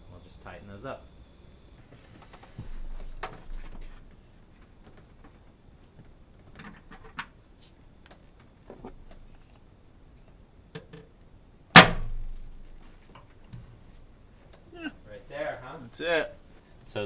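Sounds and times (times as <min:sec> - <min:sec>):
loud knock with ringing tail: 0:11.8 - 0:12.3.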